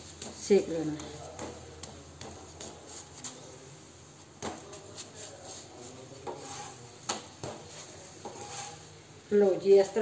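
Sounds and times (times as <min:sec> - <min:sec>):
metal spatula scraping griddle: 0:04.4 - 0:09.1.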